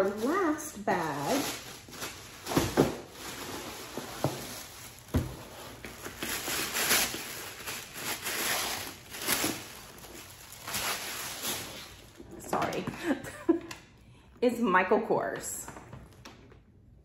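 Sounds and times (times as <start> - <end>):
tissue paper rustling: 0.0 - 12.2.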